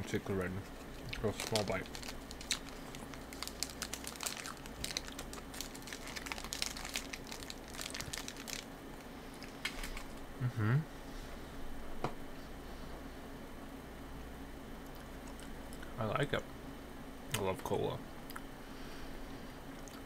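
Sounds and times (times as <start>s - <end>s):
faint steady hum: 0.0s - 20.0s
candy wrapper crinkling: 0.7s - 10.2s
person humming: 10.4s - 10.9s.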